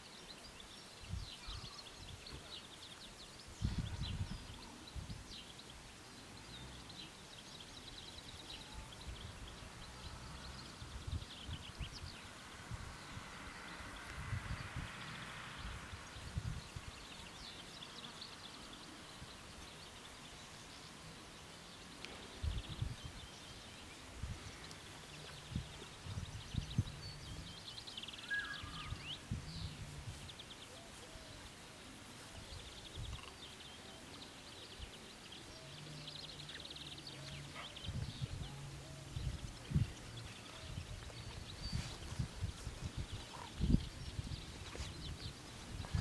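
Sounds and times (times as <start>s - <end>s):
small birds chirping: 0.0s - 46.0s
wind buffeting microphone: 3.4s - 5.4s, 8.8s - 17.5s, 22.2s - 30.6s, 36.5s - 46.0s.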